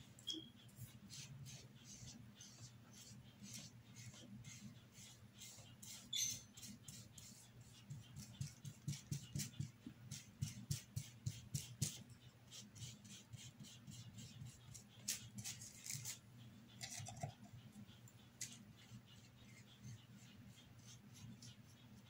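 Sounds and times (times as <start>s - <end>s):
brush in paint jar: 0.3s - 16.2s.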